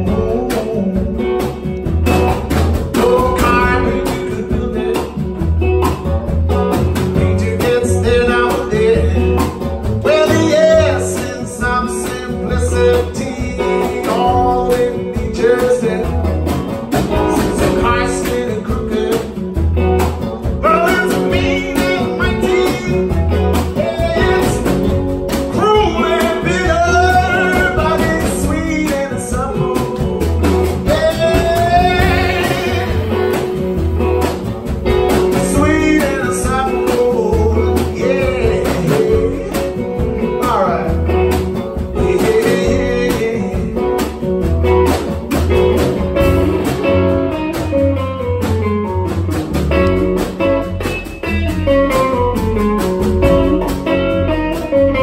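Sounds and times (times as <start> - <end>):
man singing: 0.0 - 5.5, 6.9 - 19.7, 20.4 - 33.6, 35.1 - 44.3
electric guitar: 0.0 - 55.0
upright double bass: 0.0 - 55.0.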